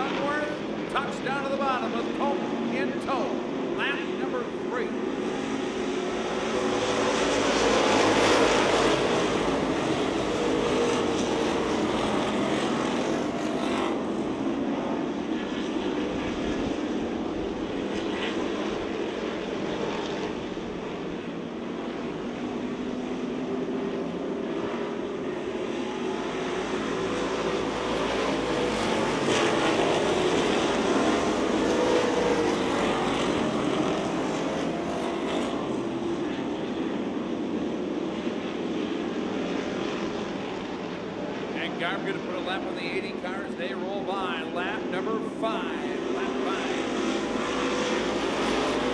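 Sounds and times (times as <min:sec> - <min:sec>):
race car engines droning: 0:00.0 - 0:48.9.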